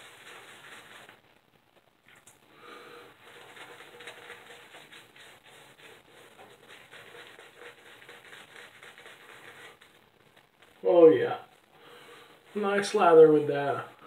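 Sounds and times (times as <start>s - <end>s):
shaving brush wet scrubbing: 0.0s - 1.2s, 3.1s - 10.0s.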